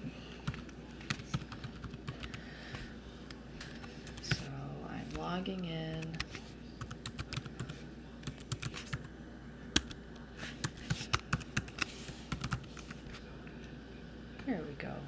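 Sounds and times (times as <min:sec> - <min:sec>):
computer keyboard typing: 0:00.4 - 0:02.4, 0:05.9 - 0:09.1, 0:09.8 - 0:10.0, 0:10.6 - 0:13.0.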